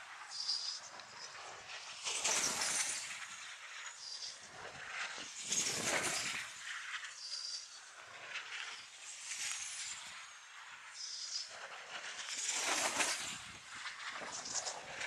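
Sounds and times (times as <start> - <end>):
glider whooshing past: 1.9 - 3.5, 4.8 - 10.6, 12.0 - 15.0.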